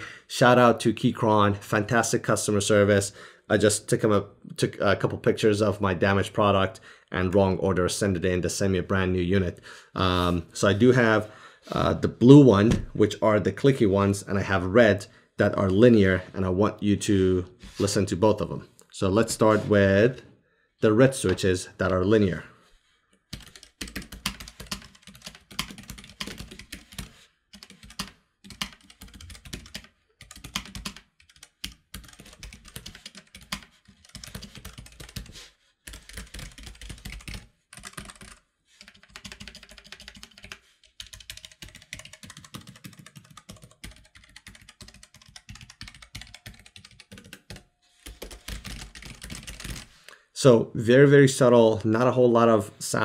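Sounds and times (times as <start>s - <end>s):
typing on mechanical keyboard: 23.3s - 49.9s.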